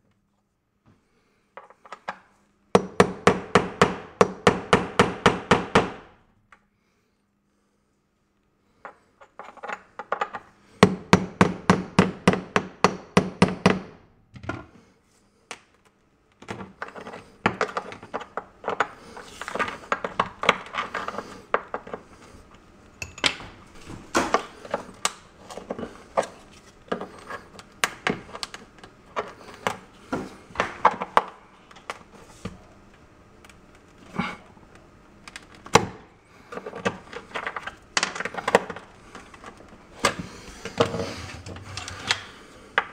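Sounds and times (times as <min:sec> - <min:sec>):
tile pieces scraping: 0:16.6 - 0:22.4.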